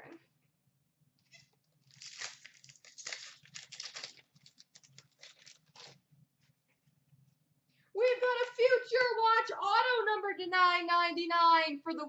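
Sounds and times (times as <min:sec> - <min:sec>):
wrapper crinkling and tearing: 0:01.7 - 0:06.0
cards rustling: 0:01.8 - 0:06.0.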